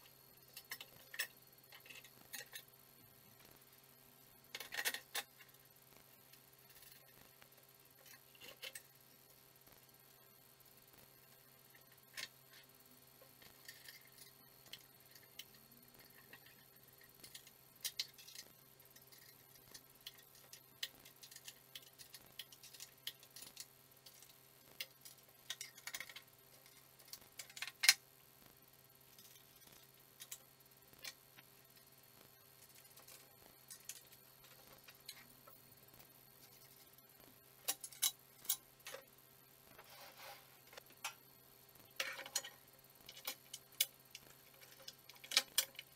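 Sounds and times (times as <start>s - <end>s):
faint steady hum: 0.0s - 45.9s
metallic clicks of bolts and nuts: 42.0s - 45.9s.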